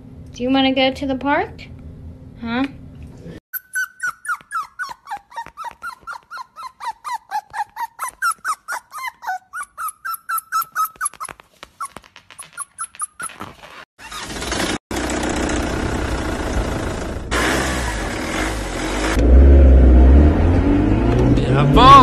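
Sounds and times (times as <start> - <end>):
puppies squeaking: 3.5 - 14.2.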